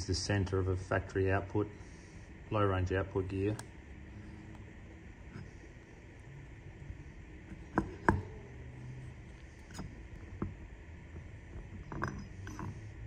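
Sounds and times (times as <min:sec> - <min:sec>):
faint low hum: 0:00.0 - 0:13.0
steel parts clicking and knocking: 0:07.5 - 0:08.4, 0:09.3 - 0:13.0.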